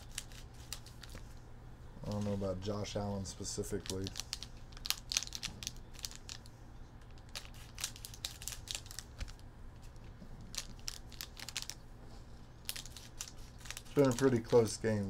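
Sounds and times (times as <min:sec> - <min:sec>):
plastic wrappers crinkling: 0:00.0 - 0:01.4, 0:02.0 - 0:11.8, 0:12.5 - 0:15.0
scissors cutting packs: 0:03.6 - 0:06.4, 0:12.7 - 0:15.0.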